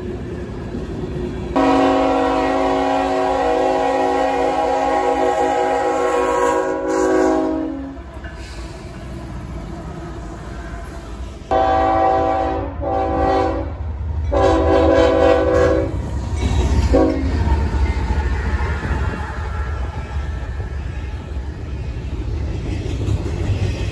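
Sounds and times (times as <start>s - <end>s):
freight train rumbling past: 0.0s - 23.9s
locomotive air horn blasts: 1.6s - 8.0s, 11.5s - 16.0s, 16.9s - 17.3s.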